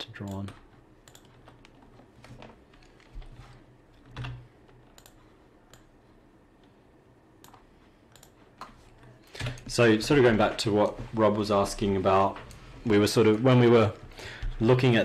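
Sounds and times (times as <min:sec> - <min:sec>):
computer keyboard key presses: 0:00.2 - 0:01.8, 0:04.0 - 0:05.9.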